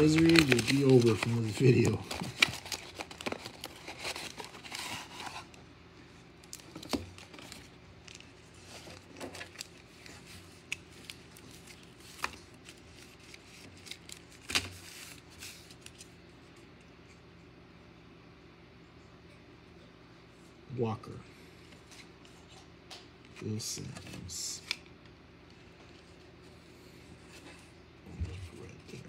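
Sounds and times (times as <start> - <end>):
card pack wrapper tearing: 0.0 - 5.5
cards rustling: 0.0 - 5.6, 6.5 - 16.6.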